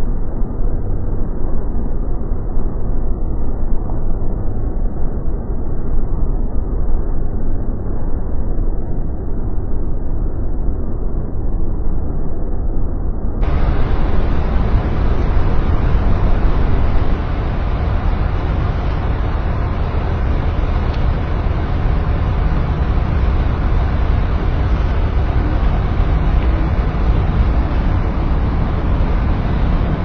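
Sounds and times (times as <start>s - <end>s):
wind buffeting microphone: 13.4s - 30.0s.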